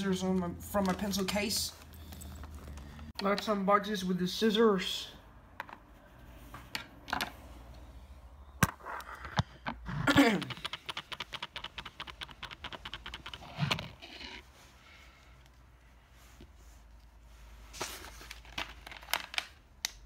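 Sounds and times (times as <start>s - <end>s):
rapid small clicks: 10.4s - 13.4s.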